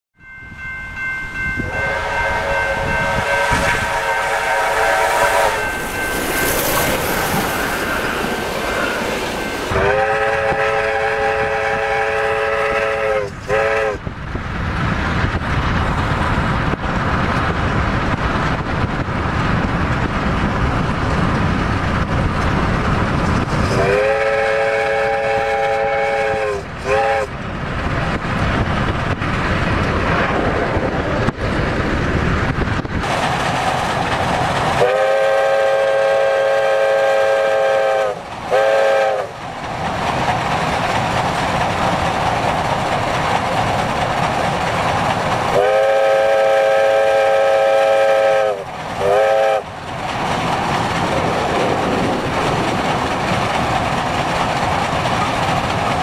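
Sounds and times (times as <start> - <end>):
steam locomotive running: 0.2 - 56.0
locomotive whistle blasts: 1.6 - 5.9, 9.7 - 14.0, 23.7 - 27.3, 34.8 - 39.3, 45.5 - 49.6.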